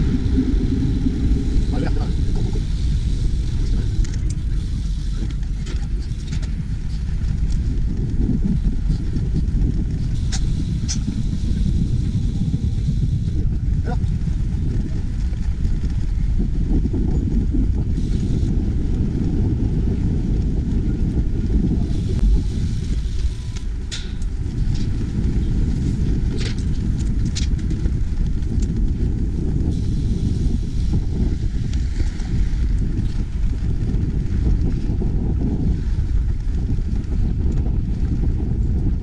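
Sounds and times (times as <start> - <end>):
road and traffic noise: 0.0 - 7.1, 10.1 - 13.7
wind buffeting microphone: 0.0 - 39.0.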